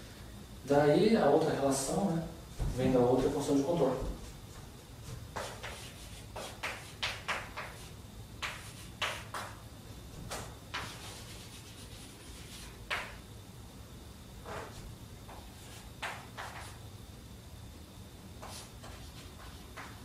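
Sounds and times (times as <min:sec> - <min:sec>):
chalk tapping and scraping: 0:05.0 - 0:09.6, 0:10.3 - 0:13.2, 0:14.4 - 0:16.8, 0:18.4 - 0:20.0.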